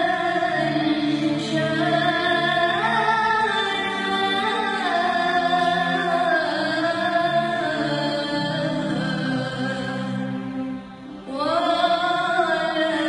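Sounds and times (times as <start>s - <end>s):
girl singing a hymn: 0.0s - 10.0s, 11.3s - 13.0s.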